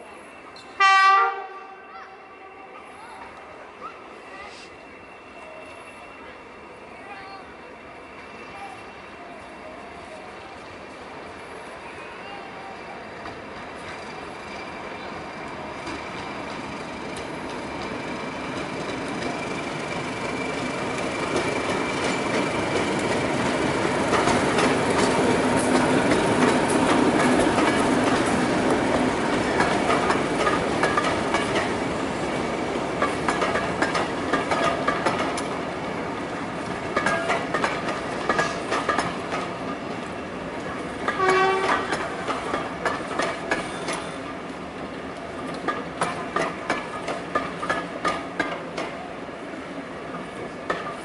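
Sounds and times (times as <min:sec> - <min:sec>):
diesel locomotive engine passing: 0:00.0 - 0:51.0
wheels clicking over rail joints: 0:13.2 - 0:49.1, 0:50.0 - 0:51.0.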